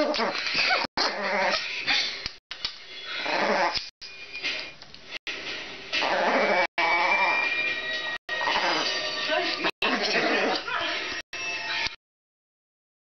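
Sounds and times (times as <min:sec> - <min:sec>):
dog whining: 0:00.0 - 0:01.6, 0:03.1 - 0:03.9, 0:06.0 - 0:07.6, 0:08.3 - 0:09.0
small dog growling: 0:00.0 - 0:01.6, 0:03.2 - 0:03.8, 0:06.0 - 0:07.5, 0:08.3 - 0:09.0.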